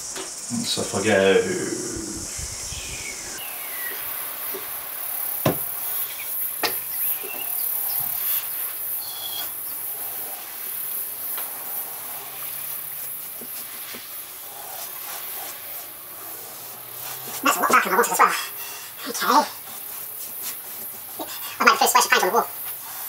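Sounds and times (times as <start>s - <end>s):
high-pitched hiss: 0.0s - 23.0s
paintbrush on paper: 3.9s - 23.0s
sharp knocks: 5.4s - 5.8s.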